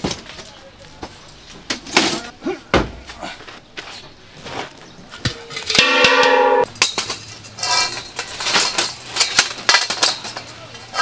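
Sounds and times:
steel tubes clanking: 0:05.5 - 0:11.0.

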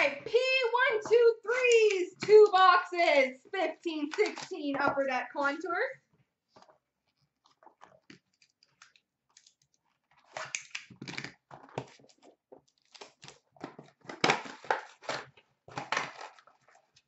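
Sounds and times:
wrapper crinkling and ripping: 0:08.2 - 0:17.0.

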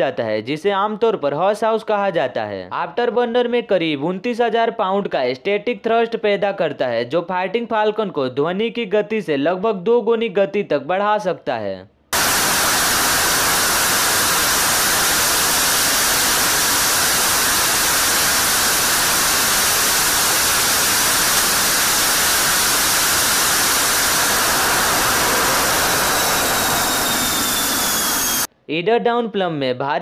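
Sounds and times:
faint falling whine: 0:12.2 - 0:28.5
jet engine roaring: 0:12.2 - 0:28.5.

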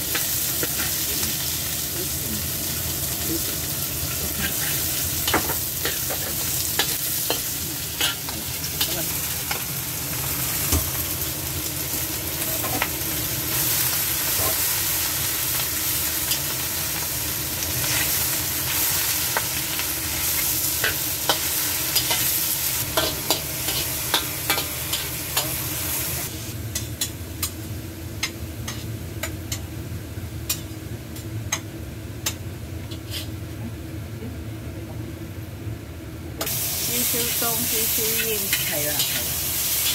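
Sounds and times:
vegetables sizzling in a wok: 0:00.0 - 0:39.9
metal spatula scraping a pan: 0:04.3 - 0:05.0.

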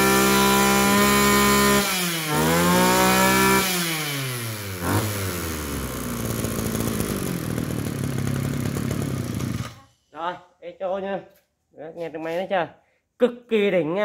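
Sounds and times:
brush cutter engine revving: 0:00.0 - 0:09.8.

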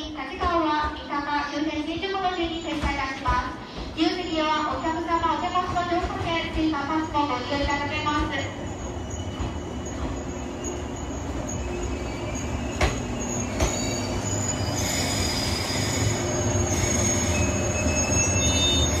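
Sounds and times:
electric train rumbling: 0:00.4 - 0:19.0
high-pitched brake squeal: 0:08.7 - 0:19.0.

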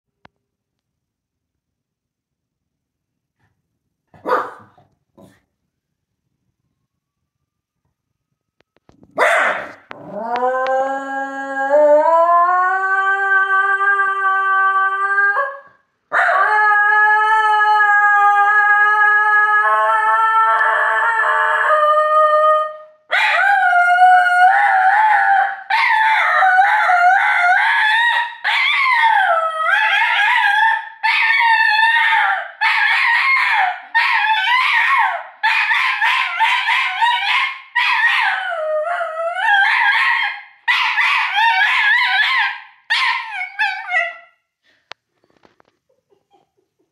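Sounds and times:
dog howling: 0:09.6 - 0:44.3.

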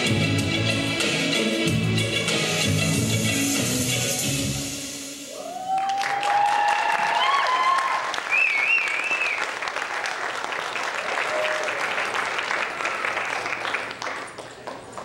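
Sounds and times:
audience applauding and cheering: 0:05.3 - 0:15.0.

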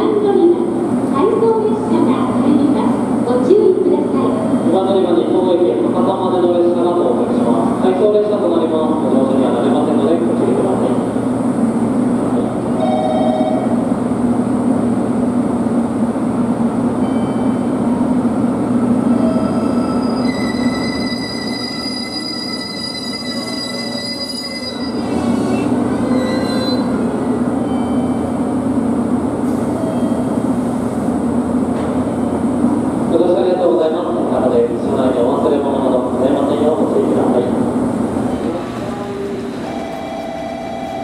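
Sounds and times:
diesel railcar rumble: 0:00.0 - 0:41.0
high brake squeal: 0:19.2 - 0:27.0.

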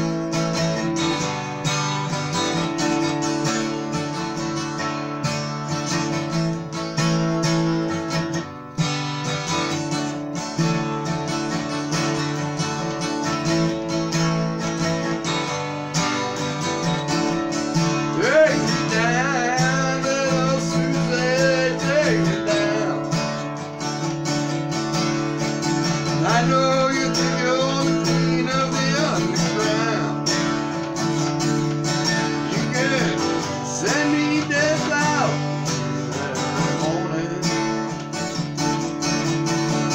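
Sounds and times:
acoustic guitar strumming: 0:00.0 - 0:39.9
man singing: 0:17.7 - 0:23.5, 0:25.7 - 0:30.8, 0:31.9 - 0:38.3.

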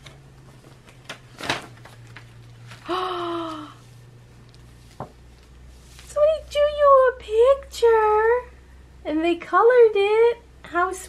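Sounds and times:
paper rustling and crinkling: 0:00.0 - 0:03.6, 0:04.3 - 0:06.3
person saying ooh: 0:02.9 - 0:03.8.

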